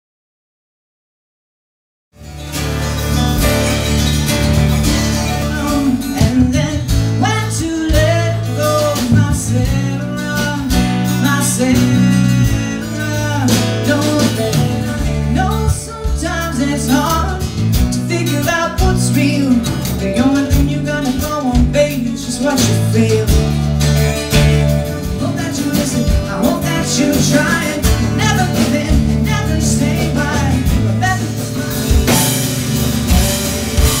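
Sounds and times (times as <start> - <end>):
electric bass: 2.2 - 34.0
slide guitar: 2.2 - 34.0
strummed acoustic guitar: 2.2 - 34.0
woman singing: 5.1 - 23.5, 24.5 - 32.5.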